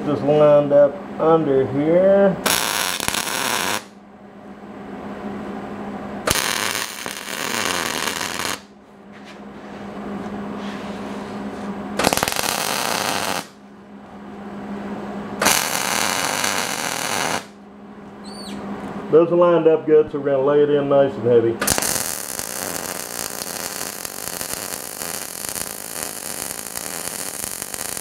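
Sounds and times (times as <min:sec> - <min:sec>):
low hum: 0:02.4 - 0:20.5
welder arc crackling: 0:02.5 - 0:03.9, 0:06.3 - 0:08.7, 0:12.0 - 0:13.6, 0:15.4 - 0:17.6, 0:21.6 - 0:28.0.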